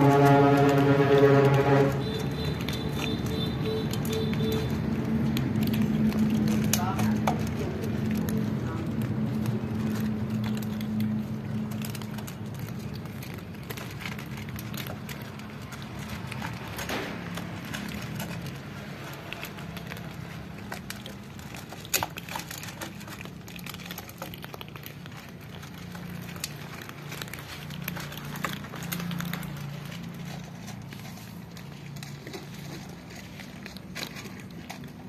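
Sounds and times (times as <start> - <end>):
cats crunching dry kibble: 0.0 - 35.0
kibble clicking against bowl: 0.0 - 35.0.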